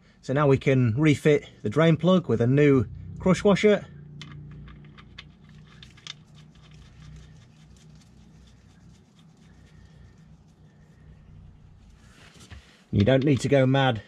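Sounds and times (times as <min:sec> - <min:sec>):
low steady hum: 0:00.0 - 0:14.0
small metallic clicks: 0:04.2 - 0:07.2.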